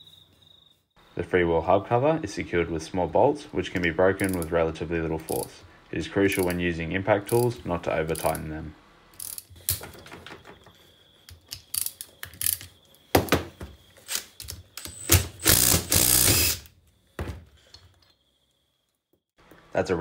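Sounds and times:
ratchet clicking: 4.2s - 4.5s, 9.2s - 9.8s, 14.1s - 16.7s
cordless impact driver running: 14.9s - 16.6s.

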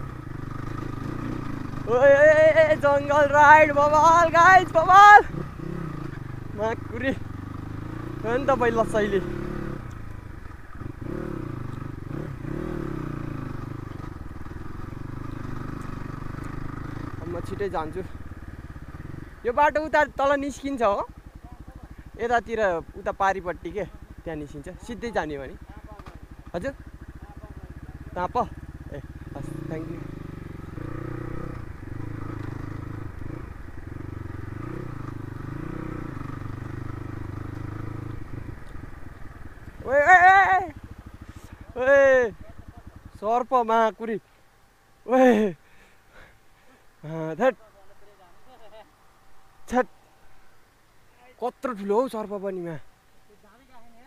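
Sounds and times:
dirt bike engine revving: 0.0s - 44.2s, 45.0s - 47.6s.

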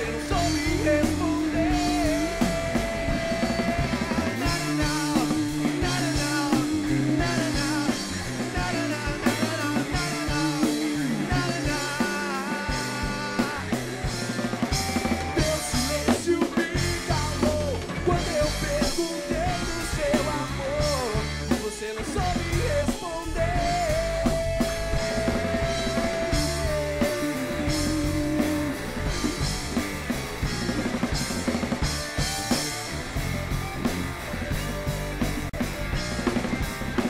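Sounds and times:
man singing: 0.0s - 29.5s
rock band playing: 0.0s - 37.0s.

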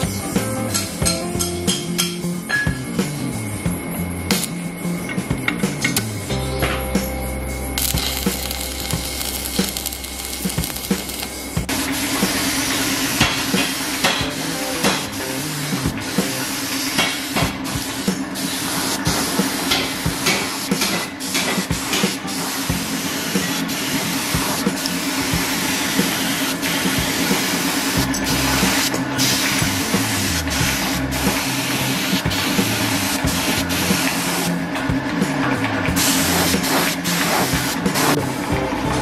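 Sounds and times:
background music with drum beat: 0.0s - 39.0s
steady low hum: 2.8s - 13.4s
arc welder crackling hiss: 4.3s - 4.6s, 7.8s - 34.6s, 35.9s - 38.2s.

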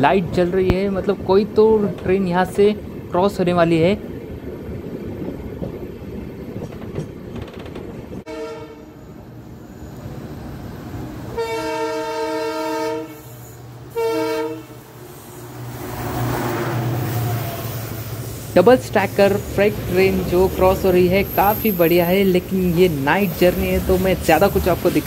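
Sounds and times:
train wheels rumbling on rails: 0.0s - 25.0s
locomotive horn blasts: 8.3s - 9.0s, 11.3s - 14.9s.

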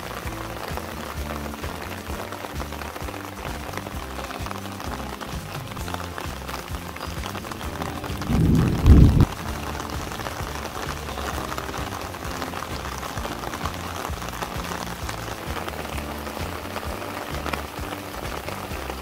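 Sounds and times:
rain pattering on plants: 0.0s - 19.0s
loud low rumble: 7.7s - 11.6s.

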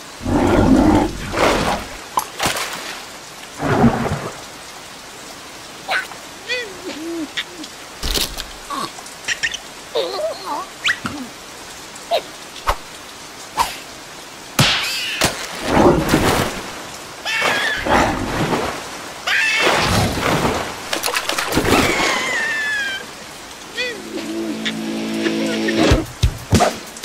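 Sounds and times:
water splashing: 0.0s - 4.8s, 14.6s - 27.0s
high wordless cartoon cries: 21.8s - 23.1s.

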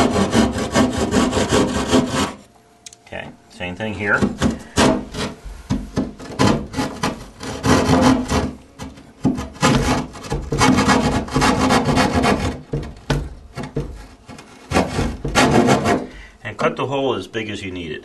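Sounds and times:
hand saw rasping through drywall: 0.0s - 2.4s, 4.4s - 16.2s.

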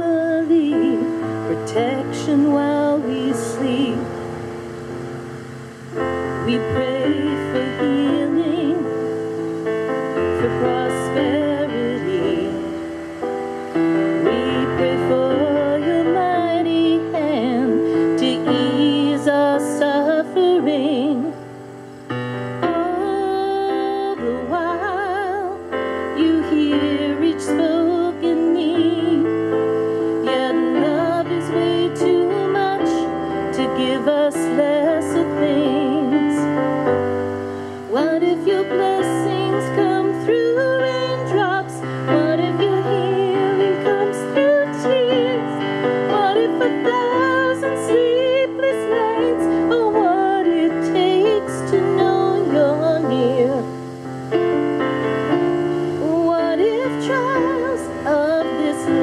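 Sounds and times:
piano accompaniment: 0.0s - 59.0s
woman singing: 0.0s - 59.0s.

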